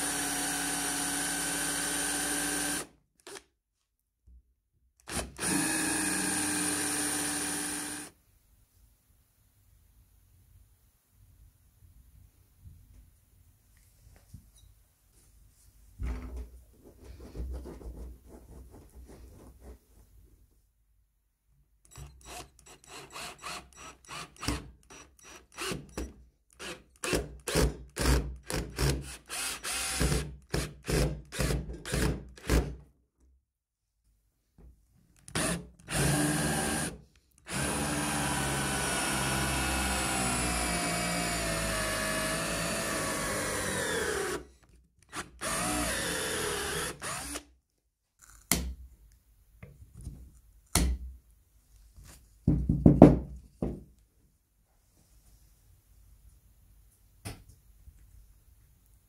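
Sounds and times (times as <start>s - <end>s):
drill boring into wood: 0.0s - 3.4s, 5.0s - 8.1s, 21.9s - 26.0s, 26.6s - 30.3s, 35.3s - 44.5s, 45.1s - 47.5s
electric drill running: 0.0s - 3.4s, 5.1s - 8.1s, 37.5s - 44.4s, 45.4s - 47.4s.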